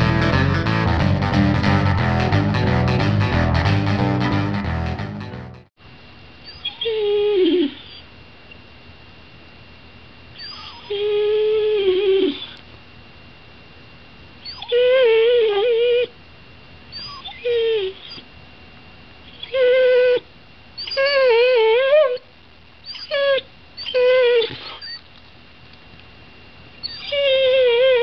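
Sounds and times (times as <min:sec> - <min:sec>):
dog whining: 0:06.4 - 0:08.1, 0:10.4 - 0:12.6, 0:14.4 - 0:16.2, 0:16.9 - 0:18.3, 0:19.3 - 0:25.1, 0:26.8 - 0:28.0.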